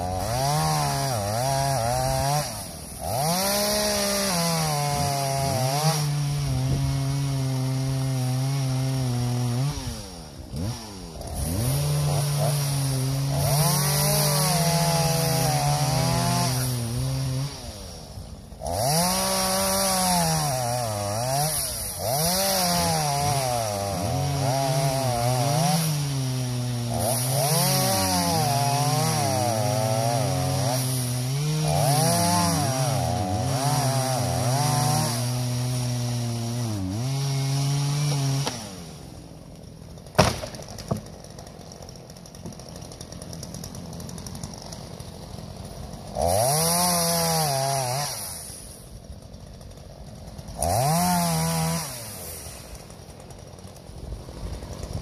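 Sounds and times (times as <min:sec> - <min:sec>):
chainsaw cutting wood: 0:00.0 - 0:55.0
tree crashing to the ground: 0:40.1 - 0:41.4.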